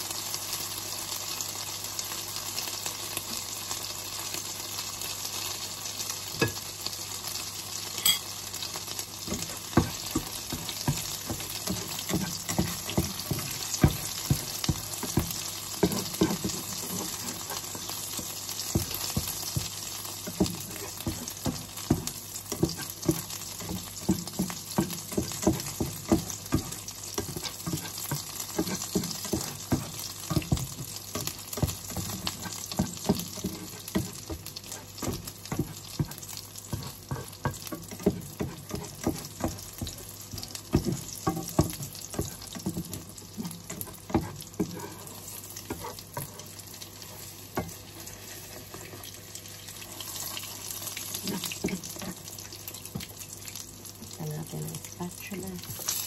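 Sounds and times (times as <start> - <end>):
food sizzling in hot oil: 0.0 - 56.0
utensil scraping a pan: 9.3 - 49.1.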